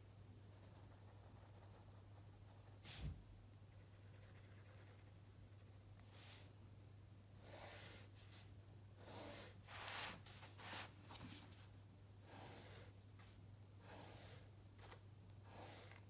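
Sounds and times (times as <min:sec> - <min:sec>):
pencil scratching on paper: 0:03.8 - 0:05.1, 0:07.4 - 0:08.4, 0:13.8 - 0:14.5, 0:15.4 - 0:16.0.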